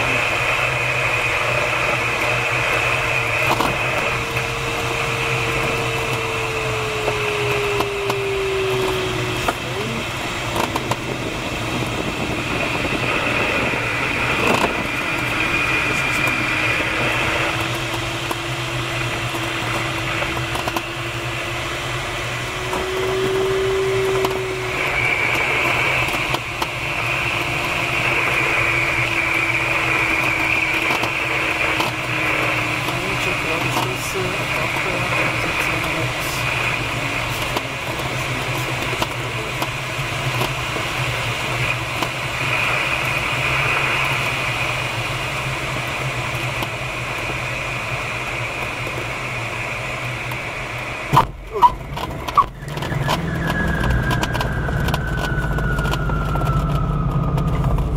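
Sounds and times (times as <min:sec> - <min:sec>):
airflow rushing in glider cockpit: 0:00.0 - 0:57.9
thin drifting tone: 0:11.5 - 0:39.5.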